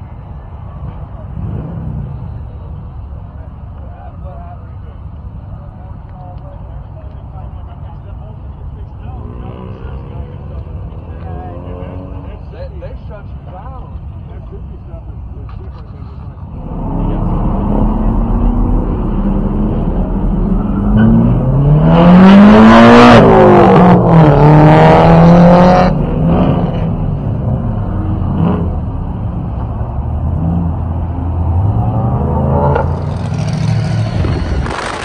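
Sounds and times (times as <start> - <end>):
car engine revving: 16.0 - 35.0.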